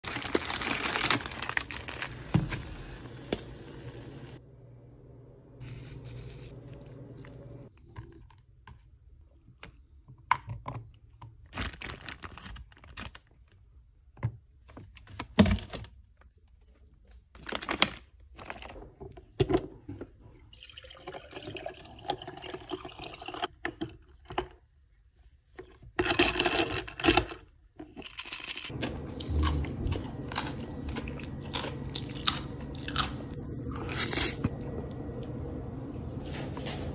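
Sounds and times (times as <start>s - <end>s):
plastic packet crinkling: 0.0s - 3.0s, 11.5s - 13.6s, 17.4s - 18.7s
liquid pouring into glass: 20.5s - 23.4s.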